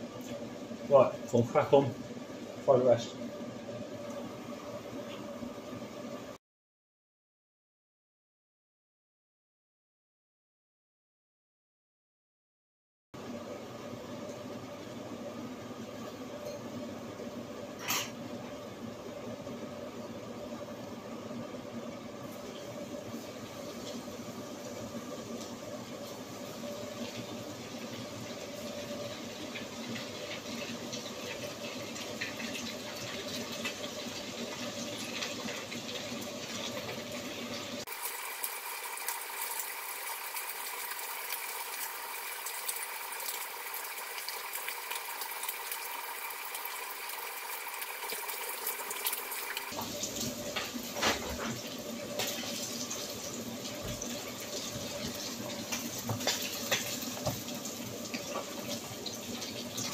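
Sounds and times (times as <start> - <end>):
fish sizzling in oil: 14.1 - 59.9.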